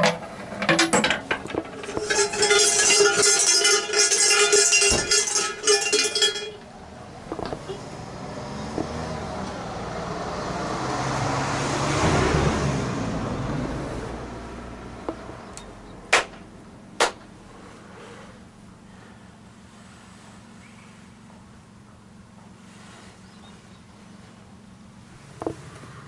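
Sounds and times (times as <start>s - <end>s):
car passing: 7.6s - 15.9s
hand claps: 17.0s - 17.2s.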